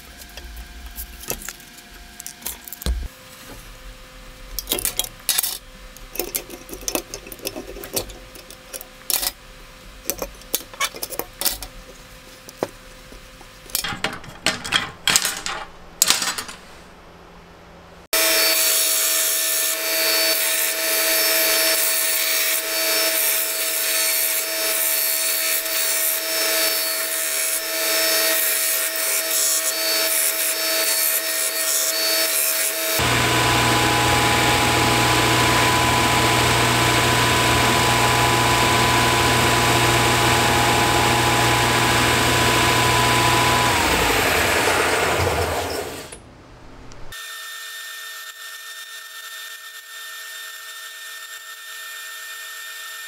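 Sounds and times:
power tool whining: 29.2s - 46.2s
machine humming: 33.0s - 47.1s.

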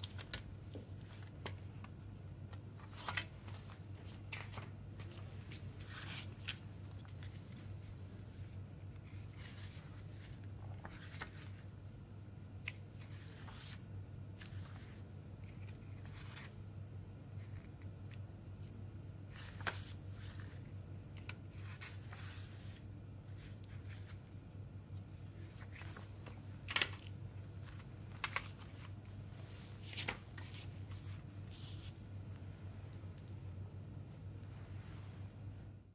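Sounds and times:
paper pages rustling: 0.0s - 11.8s, 12.6s - 13.8s, 14.4s - 16.7s, 19.3s - 24.4s, 25.2s - 32.1s
steady low hum: 0.0s - 35.9s.

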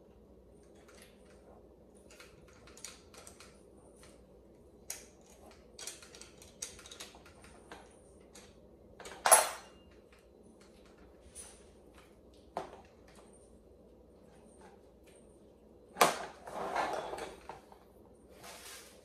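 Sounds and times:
plastic parts clicking and rustling: 2.0s - 4.2s, 4.9s - 11.1s.

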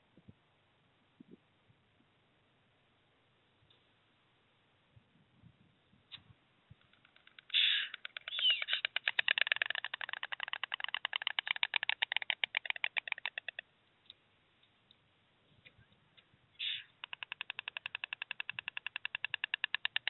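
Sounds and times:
storks bill-clattering: 6.8s - 13.6s, 16.6s - 20.0s.

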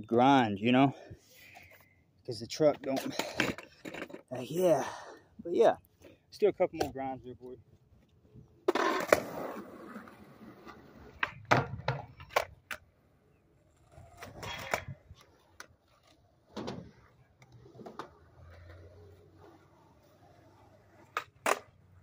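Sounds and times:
skateboard wheels rolling on concrete: 2.4s - 22.0s
skateboard clacking: 20.9s - 22.0s.

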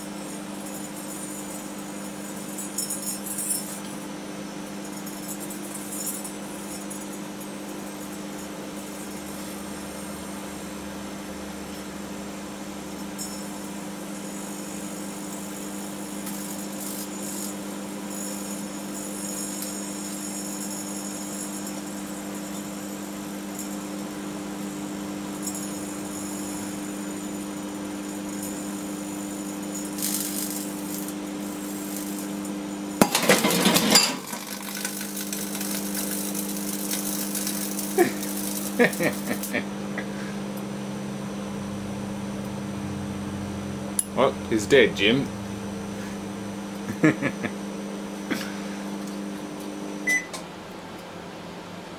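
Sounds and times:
microwave oven humming: 0.0s - 51.9s.

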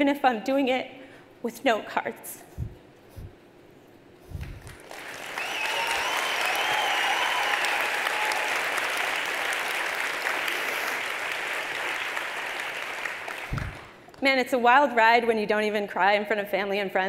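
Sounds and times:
audience applause: 4.6s - 14.0s
high drawn-out cheer: 4.8s - 13.9s.

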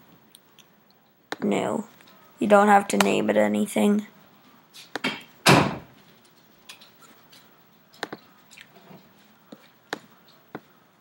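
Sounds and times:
computer mouse clicking: 8.0s - 8.7s.

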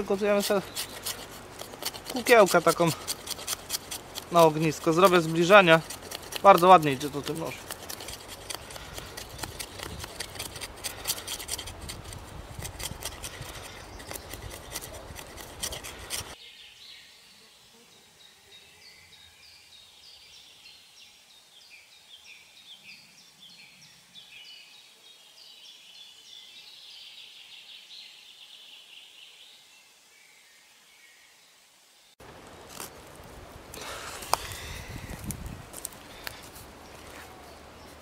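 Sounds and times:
knife scraping wood: 0.0s - 16.4s, 32.6s - 33.1s, 33.7s - 36.7s.

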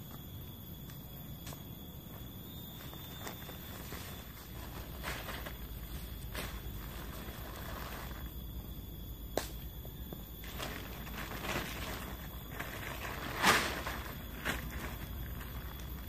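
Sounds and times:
tarp rustling: 3.0s - 8.3s, 10.4s - 16.0s
tarp snapping: 10.4s - 15.0s
tarp flapping: 10.4s - 16.0s.

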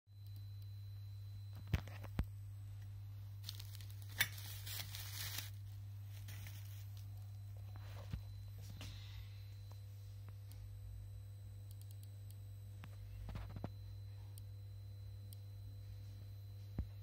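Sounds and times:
low electrical hum: 0.1s - 17.0s
crinkling rustle: 3.4s - 8.2s.

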